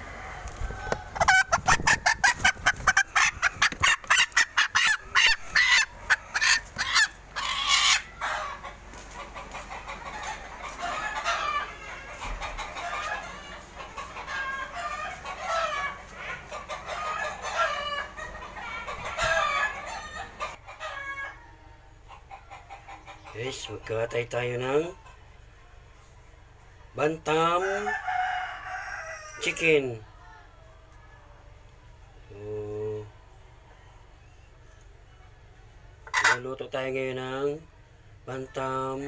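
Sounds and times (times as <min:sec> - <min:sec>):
chicken squawking and clucking: 0:00.0 - 0:23.8, 0:27.5 - 0:29.8, 0:32.8 - 0:36.6.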